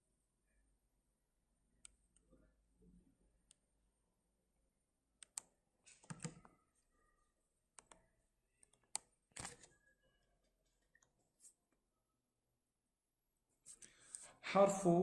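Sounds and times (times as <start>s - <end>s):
computer keys clicking: 5.2s - 6.5s, 7.8s - 8.0s.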